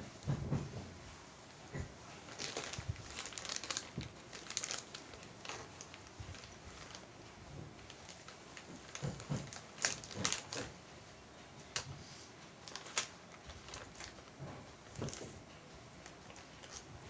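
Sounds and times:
plastic bag crinkling: 2.1 - 10.8, 12.6 - 17.0.

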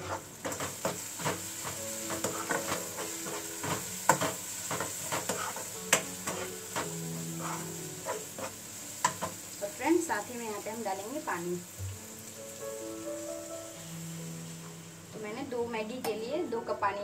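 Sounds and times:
spatula knocking on pan: 0.0 - 9.4
spatula scraping vegetables: 0.0 - 9.4
vegetables sizzling: 0.0 - 16.8.

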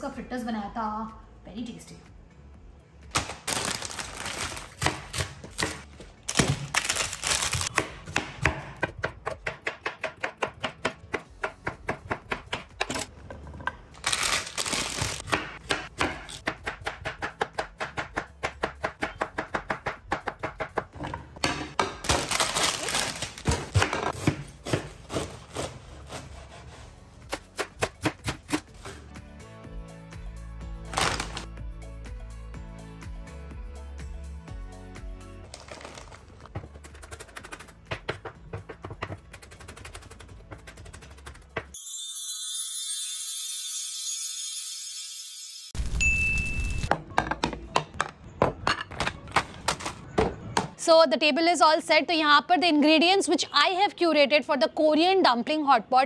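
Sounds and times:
knife chopping on wooden board: 7.7 - 13.1, 15.2 - 22.0, 23.5 - 26.7.

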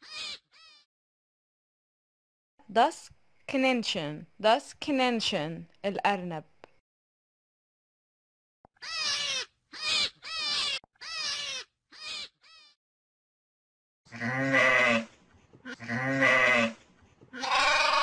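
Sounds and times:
sheep bleating: 14.1 - 15.1, 15.7 - 16.8, 17.4 - 18.0.

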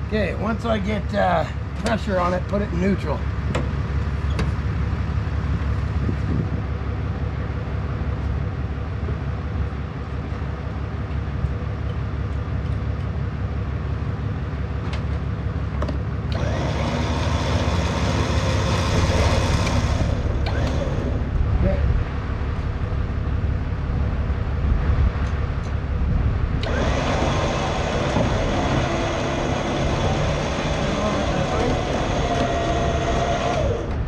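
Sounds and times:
vehicle engine idling: 0.0 - 34.0
electric winch running: 16.3 - 21.5, 26.6 - 34.0.

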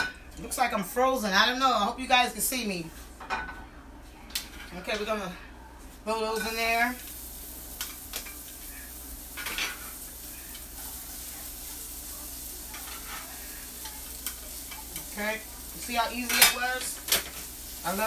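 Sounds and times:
onions sizzling in oil: 6.2 - 18.0
metal tongs clicking on pan: 13.8 - 15.1.

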